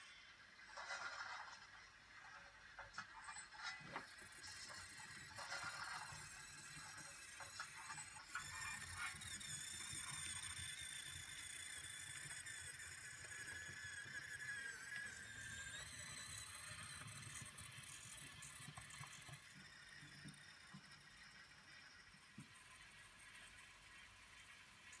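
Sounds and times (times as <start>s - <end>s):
toy electric motor whining: 2.4s - 24.6s.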